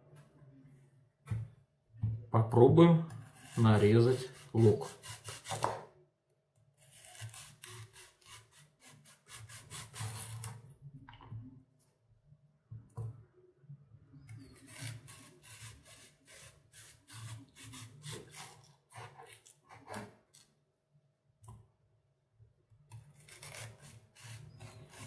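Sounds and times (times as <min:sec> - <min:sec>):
knife sawing through onion: 0:03.2 - 0:05.6, 0:06.8 - 0:10.5, 0:14.4 - 0:19.4, 0:23.2 - 0:25.0.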